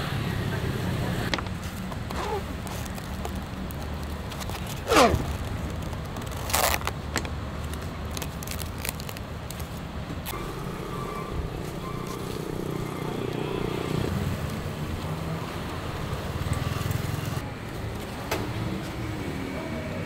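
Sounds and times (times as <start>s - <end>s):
passing road traffic: 0.0s - 20.0s.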